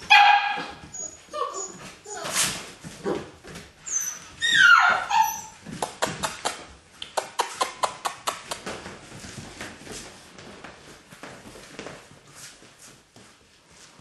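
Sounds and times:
puppy yelping: 0.0s - 2.5s, 3.9s - 5.6s.

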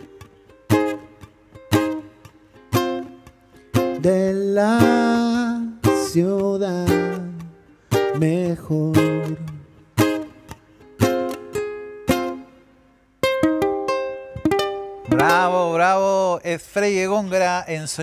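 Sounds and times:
ukulele strummed chords: 0.0s - 17.3s
man singing: 3.8s - 9.8s, 15.1s - 18.0s.

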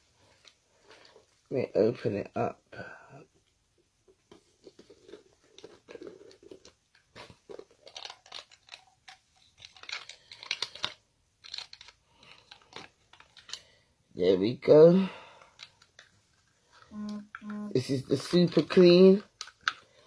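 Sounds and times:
plastic packaging crinkling: 4.4s - 13.8s.

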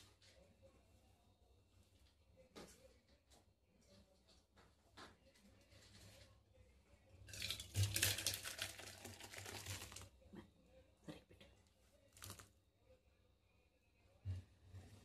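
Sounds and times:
thick liquid splattering into bowl: 7.3s - 10.1s.

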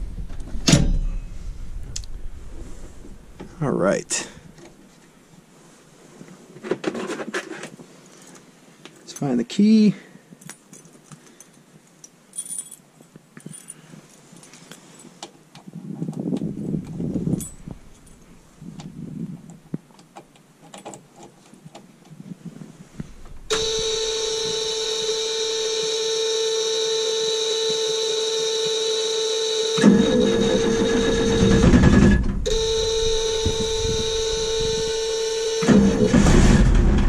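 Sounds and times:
diesel engine starter cranking: 23.4s - 25.8s, 29.5s - 37.0s
dash warning buzzer: 23.5s - 36.5s.

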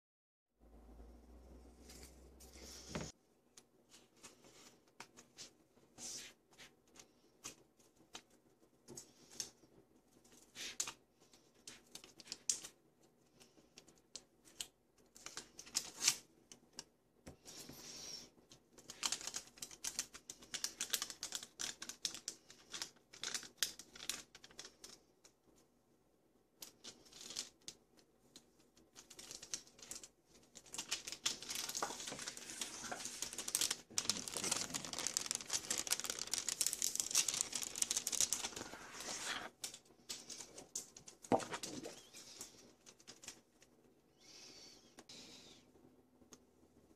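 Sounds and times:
paper and plastic crinkling: 18.8s - 25.1s, 28.4s - 43.7s.

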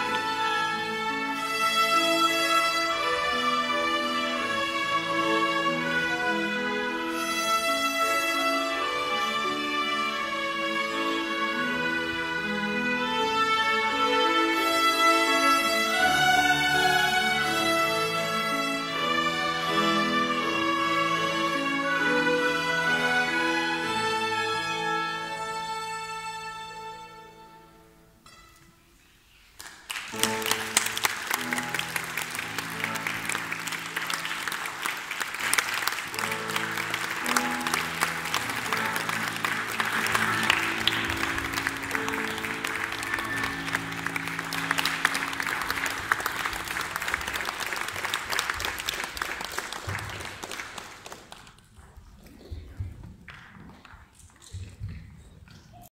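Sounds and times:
audience applause: 29.6s - 51.8s
sustained musical notes: 30.2s - 49.8s.

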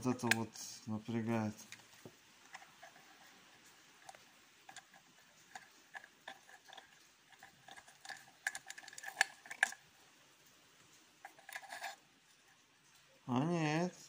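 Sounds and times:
small metal and plastic parts clicking: 1.6s - 9.9s, 11.2s - 12.4s.

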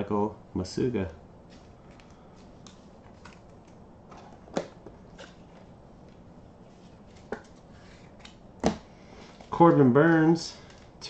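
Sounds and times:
plastic sleeves rustling: 1.4s - 8.5s.

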